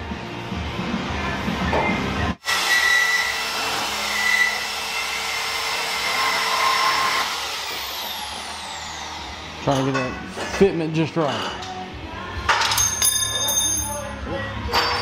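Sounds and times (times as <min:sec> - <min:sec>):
band saw cutting steel: 0:02.4 - 0:09.8.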